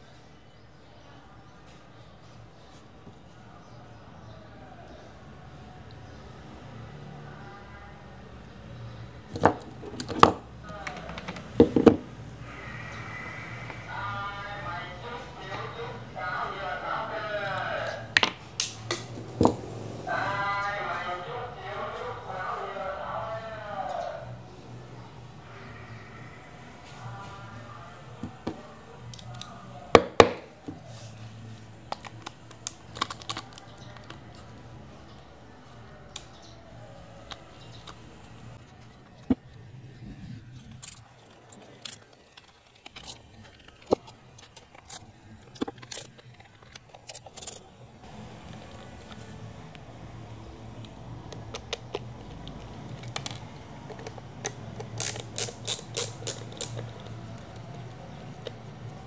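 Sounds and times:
faint background music: 0.0s - 59.0s
plastic and metal parts clicking: 9.3s - 12.0s, 31.8s - 34.6s, 40.7s - 49.3s, 50.8s - 58.6s.

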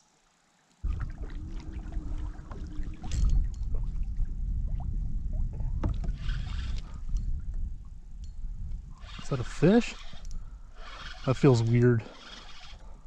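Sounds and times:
wind buffeting microphone: 0.8s - 13.0s
water slapping against kayak hull: 0.9s - 6.9s
small clicks from fishing gear: 5.8s - 13.0s.

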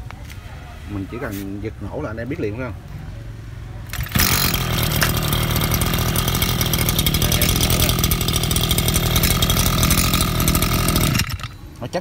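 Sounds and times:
brush cutter engine running: 3.9s - 11.9s.

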